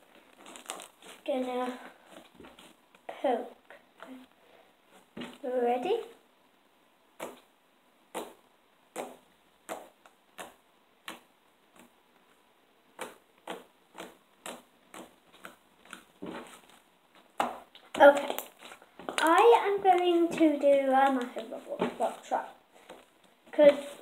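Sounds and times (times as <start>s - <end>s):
sticky pops of poked slime: 7.2s - 7.5s, 8.1s - 12.0s, 12.9s - 16.1s.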